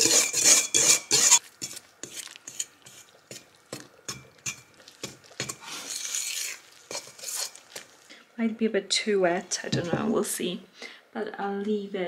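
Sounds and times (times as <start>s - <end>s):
dough scraping in metal bowl: 0.0s - 3.5s, 4.4s - 7.9s.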